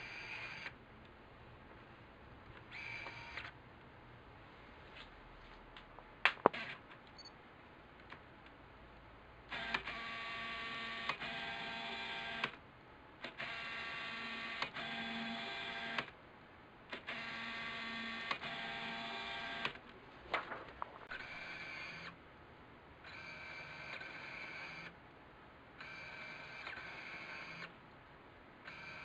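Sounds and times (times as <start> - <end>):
lens focus motor whirring: 0.0 - 0.7, 2.7 - 3.5, 13.4 - 16.1, 21.1 - 22.2, 23.0 - 24.9, 25.8 - 27.7, 28.6 - 29.0.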